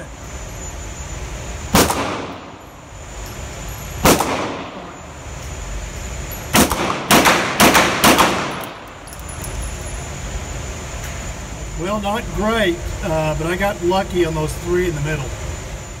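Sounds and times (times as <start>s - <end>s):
pistol shots echoing indoors: 1.7s - 2.6s, 4.0s - 5.0s, 6.5s - 9.0s.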